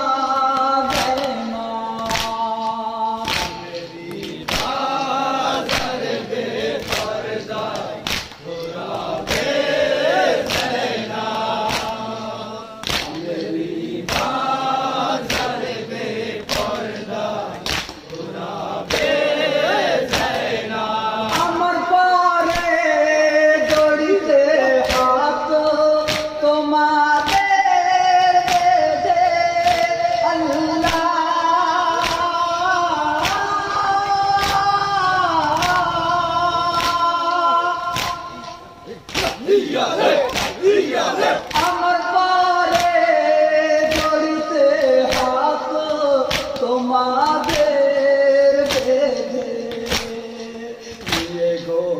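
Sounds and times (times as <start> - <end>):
men singing in unison: 0.0 - 51.9.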